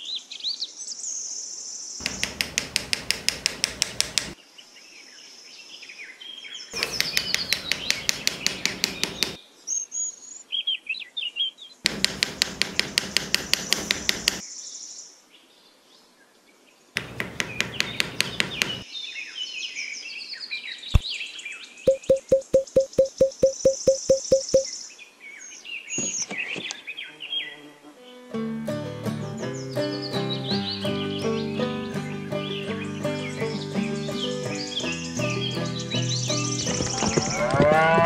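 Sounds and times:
rapid tapping of sticks into sand: 2.0s - 4.4s, 6.8s - 9.4s, 11.9s - 14.4s, 17.0s - 18.8s, 21.9s - 24.7s
birds chirping: 6.6s - 9.4s, 11.8s - 14.7s, 17.0s - 27.6s, 29.5s - 37.6s.

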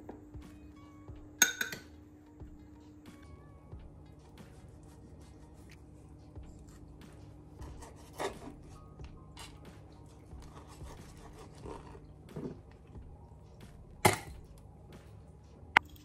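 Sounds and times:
knife cutting on cutting board: 7.6s - 8.8s, 10.5s - 12.5s.

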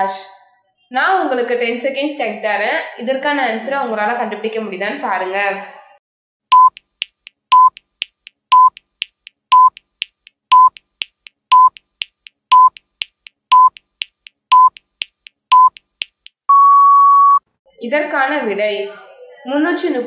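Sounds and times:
short timer beeps: 6.5s - 6.9s, 7.5s - 7.9s, 8.5s - 8.9s, 9.5s - 9.9s, 10.5s - 10.9s, 11.5s - 11.9s, 12.5s - 12.9s, 13.5s - 13.9s, 14.5s - 14.9s, 15.5s - 15.8s
faint timer ticks: 6.5s - 16.5s.

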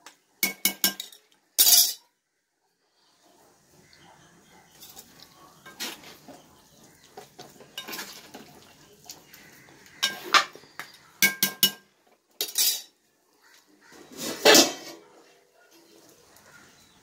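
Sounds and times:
metal ladle scraping a pot: 4.8s - 11.8s, 13.9s - 15.1s.

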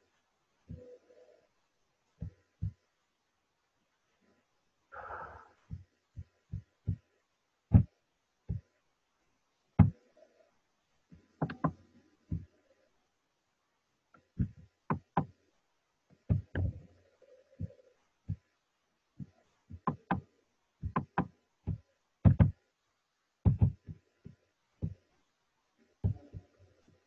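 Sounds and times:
sharp knocks and taps: 7.7s - 8.7s, 9.8s - 10.0s, 11.1s - 12.5s, 14.1s - 15.4s, 16.1s - 16.9s, 19.2s - 22.6s, 23.4s - 25.1s, 26.0s - 27.0s.

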